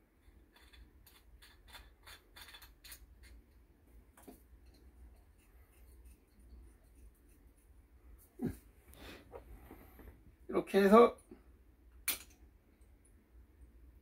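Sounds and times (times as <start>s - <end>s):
metal ticks and scrapes: 0.2s - 3.6s, 4.2s - 7.7s.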